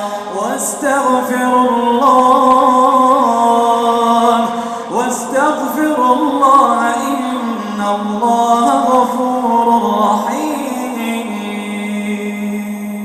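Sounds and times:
man chanting recitation: 0.0 - 13.0.

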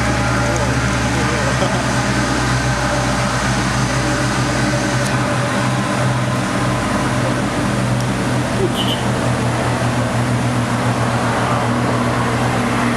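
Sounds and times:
truck engine droning: 0.0 - 12.9.

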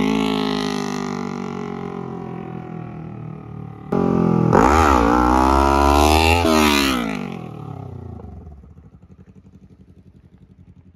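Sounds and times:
motorcycle engine revving: 0.0 - 10.9.

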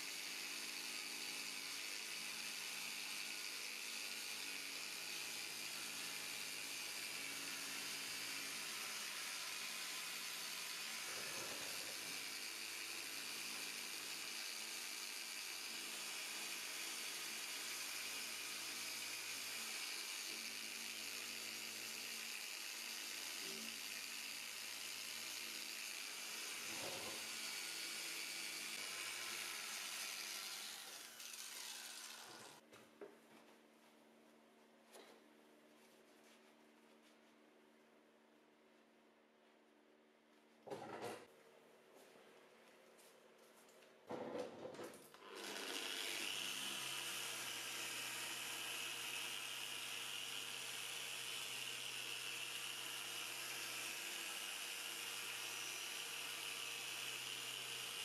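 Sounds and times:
power tool motor hum: 0.0 - 32.6, 45.2 - 58.0.

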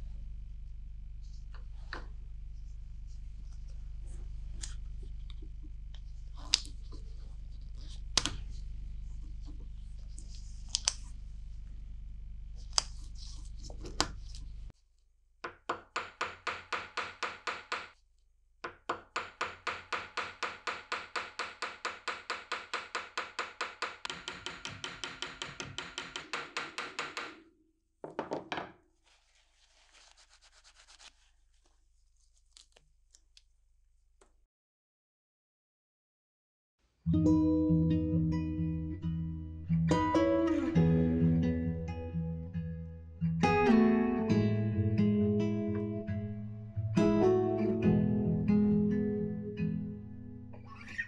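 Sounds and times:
low hum: 0.0 - 13.6.

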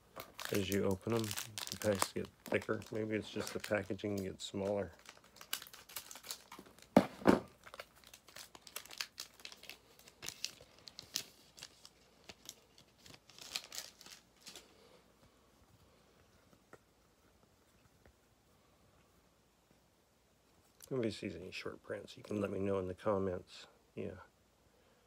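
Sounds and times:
foil wrapper crinkling and tearing: 0.0 - 14.9.

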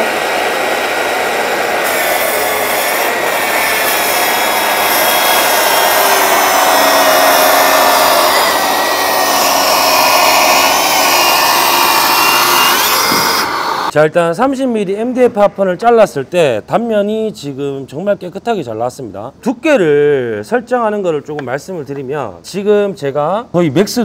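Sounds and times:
track saw cutting board: 0.0 - 13.9.

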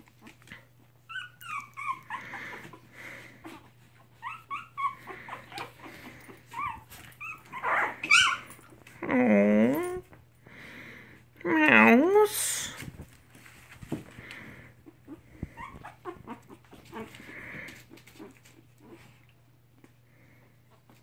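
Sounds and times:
puppies squeaking and whimpering: 0.2 - 8.8, 14.4 - 19.2.

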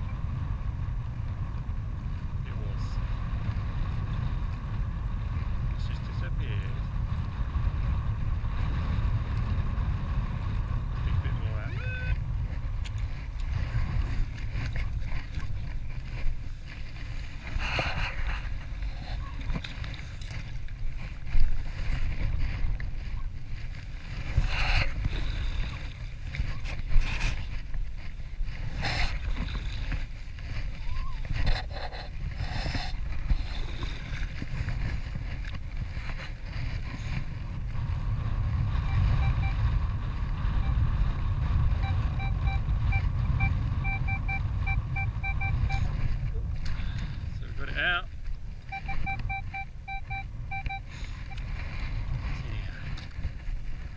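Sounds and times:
wind rumble on microphone: 0.0 - 53.9
metal detector beeps: 38.8 - 39.7, 40.6 - 40.8, 41.7 - 46.0, 48.7 - 51.5.

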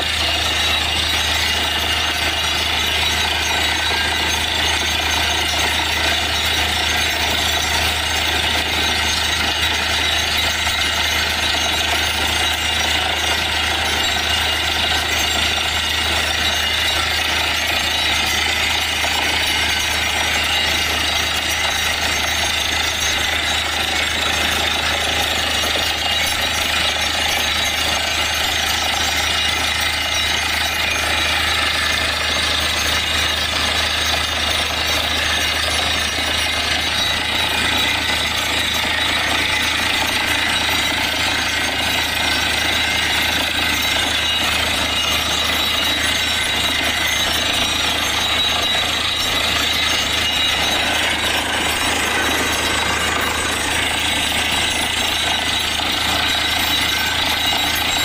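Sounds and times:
drilling hammer pounding: 0.0 - 58.0
engine and compressor drone: 22.1 - 58.0.

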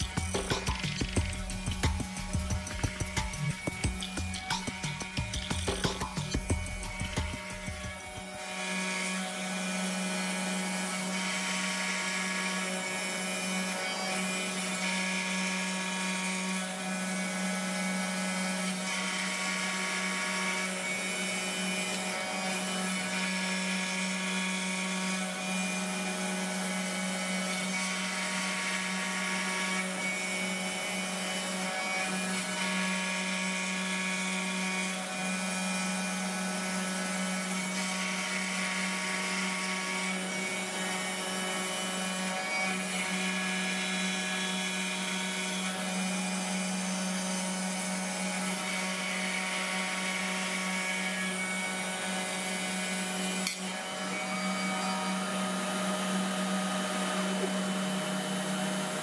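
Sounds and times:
high cutting whine: 0.0 - 9.9
router spindle cutting wood: 0.0 - 59.0.

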